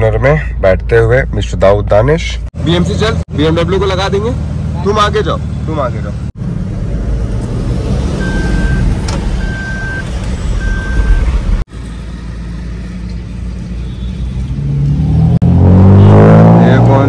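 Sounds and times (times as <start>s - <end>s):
car engine and road rumble: 0.0s - 17.0s
in-car warning beeps: 8.2s - 11.4s.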